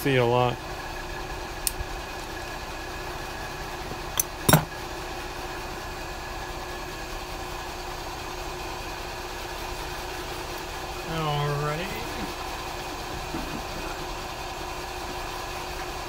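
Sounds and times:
sharp metallic clicks: 0:04.2 - 0:04.7.

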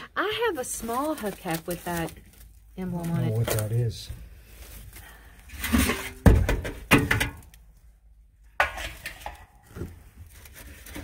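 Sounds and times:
metal hubcaps clattering and scraping: 0:05.5 - 0:07.5, 0:08.5 - 0:10.1.

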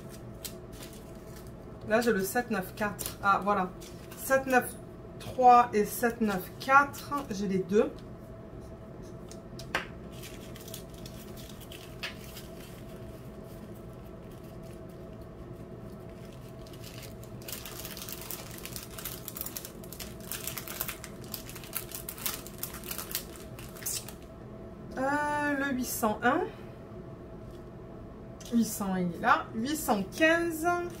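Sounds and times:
plastic bags crinkling: 0:00.0 - 0:01.6, 0:02.8 - 0:04.4, 0:10.1 - 0:24.3
steady low hum: 0:00.0 - 0:31.0.

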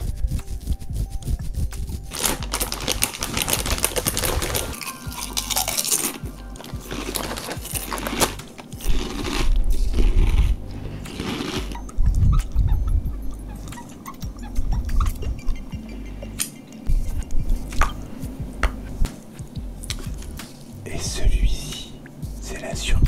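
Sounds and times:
fingertips scratching beard: 0:00.0 - 0:12.5.

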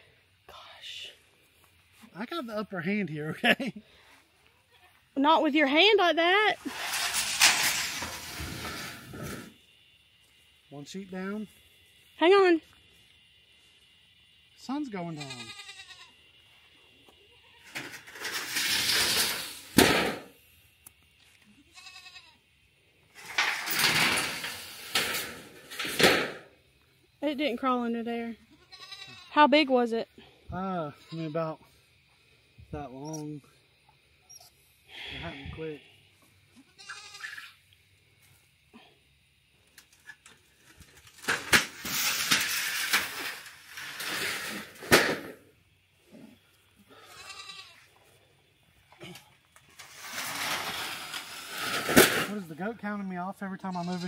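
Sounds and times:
metal sheets scraping and rattling: 0:06.6 - 0:09.5, 0:17.7 - 0:20.2, 0:23.2 - 0:26.4, 0:40.8 - 0:45.4, 0:49.8 - 0:52.3
goat bleating: 0:15.1 - 0:16.2, 0:21.6 - 0:22.4, 0:28.5 - 0:29.4, 0:36.6 - 0:37.6, 0:46.9 - 0:47.9.

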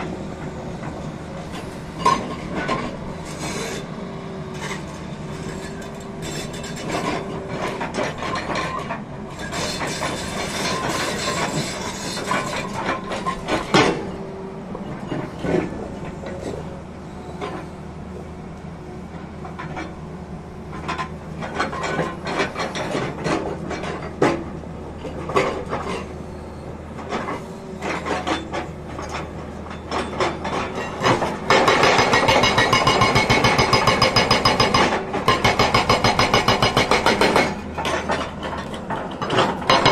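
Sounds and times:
excavator diesel engine running: 0:00.0 - 0:39.9
hydraulic rock breaker hammering: 0:30.0 - 0:39.9.

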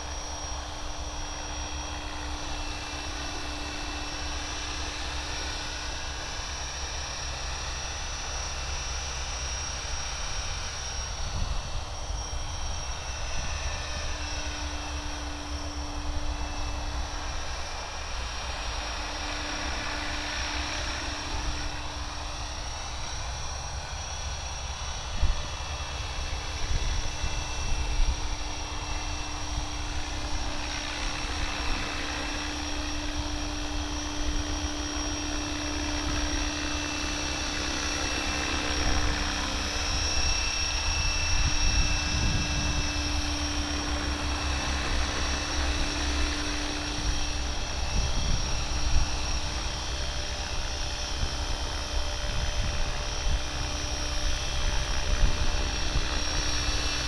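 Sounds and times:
rc helicopter motor whine: 0:00.0 - 0:57.0
wind on microphone: 0:25.0 - 0:32.4, 0:35.9 - 0:57.0.

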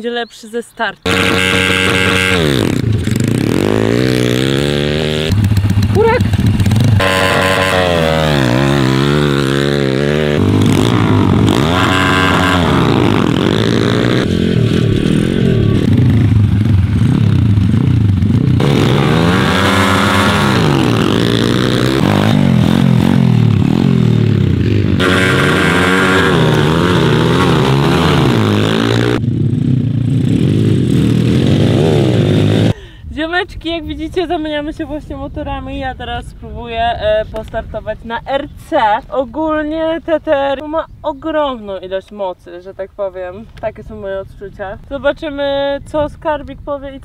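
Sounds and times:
pitbike engines revving: 0:01.0 - 0:32.9.

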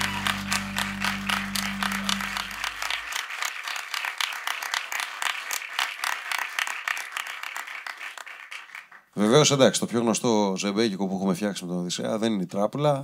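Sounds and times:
band's low chord ringing: 0:00.0 - 0:03.0
small audience applauding: 0:00.0 - 0:09.2.

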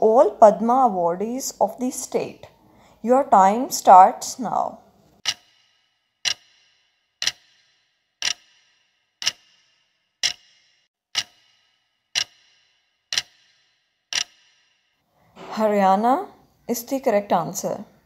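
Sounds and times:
clock ticking: 0:05.2 - 0:14.6.

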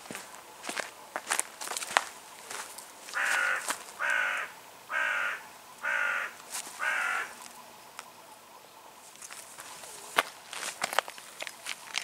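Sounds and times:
crow cawing: 0:03.1 - 0:07.4.

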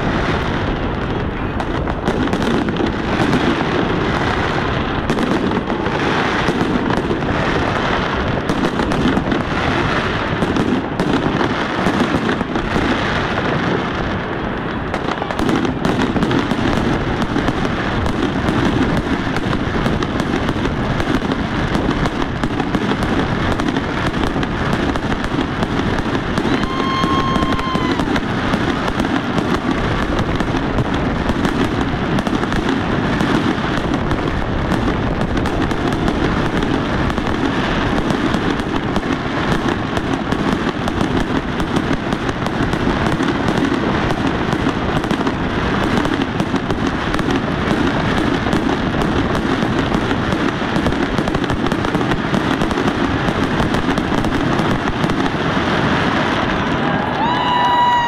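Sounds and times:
fireworks bursting and crackling: 0:00.0 - 0:58.0
firework whistle: 0:14.9 - 0:34.0, 0:53.7 - 0:58.0.

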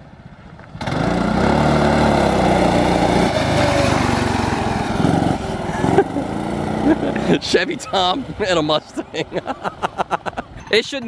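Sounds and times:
small gas engine driving past: 0:00.0 - 0:08.8.

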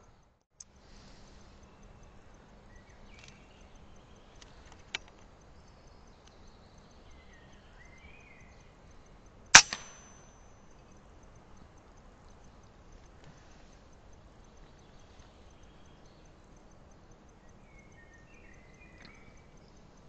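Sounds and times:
birds calling faintly: 0:00.0 - 0:20.0
small click: 0:03.1 - 0:03.4, 0:19.0 - 0:19.2
air rifle shot: 0:09.6 - 0:10.2.

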